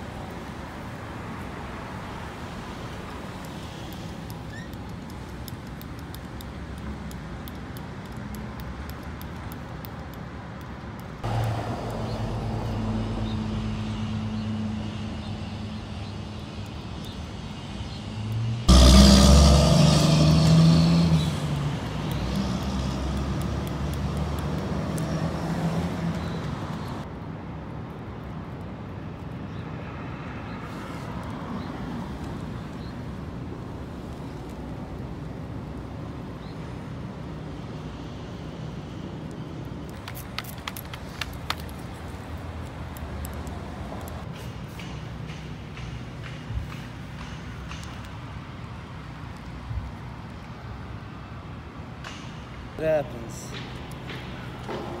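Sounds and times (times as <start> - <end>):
cars passing: 5.5 - 27.2, 29.6 - 55.0
loud vehicle passing close: 11.2 - 15.2, 18.2 - 27.0.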